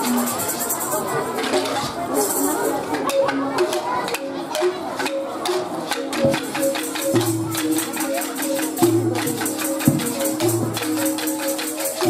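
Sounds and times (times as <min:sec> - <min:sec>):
tambourine jingles: 0:00.0 - 0:01.3, 0:06.3 - 0:12.0
angklung rattling melody: 0:00.0 - 0:12.0.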